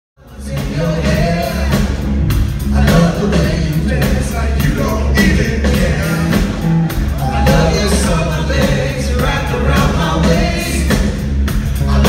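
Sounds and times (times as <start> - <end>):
live band playing: 0.2 - 12.0
person singing: 2.7 - 11.1.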